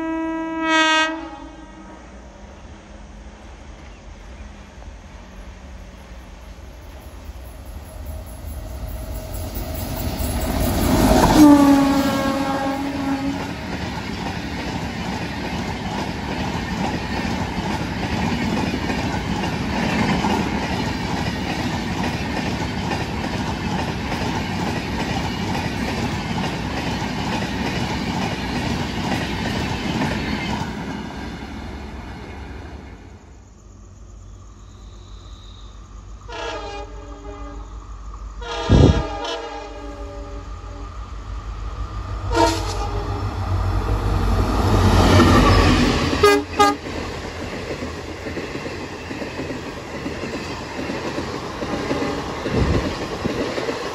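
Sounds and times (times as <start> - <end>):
train horn: 0.0 - 2.3, 10.6 - 13.7, 36.2 - 37.8, 38.4 - 41.1, 42.2 - 43.5, 45.0 - 46.9
train roaring past: 0.0 - 53.9.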